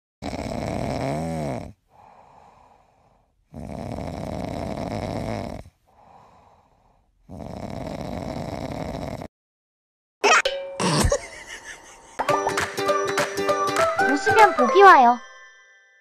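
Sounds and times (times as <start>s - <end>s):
person snoring: 0.2s - 9.3s.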